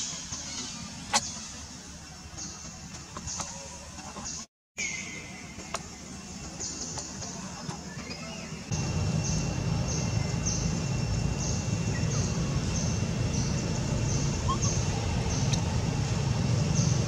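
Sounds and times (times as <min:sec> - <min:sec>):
low rumble: 0:08.7 - 0:17.0.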